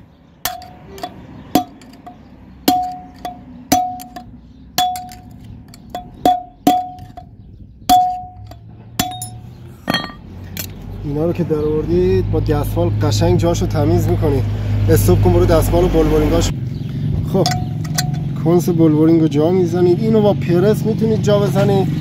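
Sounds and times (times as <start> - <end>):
hammer striking metal: 0.5 - 7.3, 7.9 - 10.2, 17.5 - 18.3.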